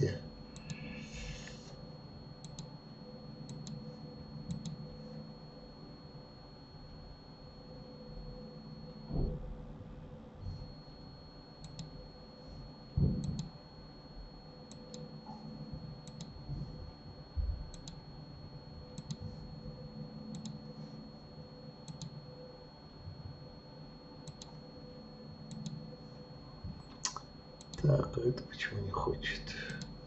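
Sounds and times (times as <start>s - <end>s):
faint high whine: 0.0s - 30.0s
computer mouse clicking: 0.6s - 0.8s, 2.4s - 2.7s, 3.5s - 3.9s, 4.5s - 4.8s, 11.6s - 11.9s, 13.1s - 13.5s, 14.7s - 15.1s, 16.0s - 16.3s, 17.7s - 18.0s, 18.9s - 19.2s, 20.3s - 20.6s, 21.8s - 22.2s, 24.2s - 24.6s, 25.5s - 25.8s, 29.7s - 30.0s.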